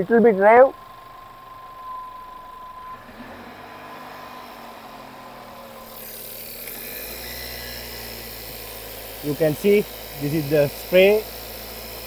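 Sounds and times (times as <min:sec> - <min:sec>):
car engine running: 0:00.0 - 0:12.0
loud hiss: 0:03.0 - 0:12.0.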